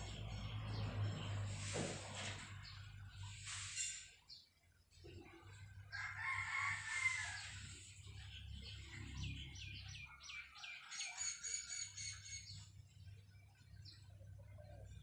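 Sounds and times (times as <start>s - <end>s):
rooster crowing: 5.9s - 7.7s.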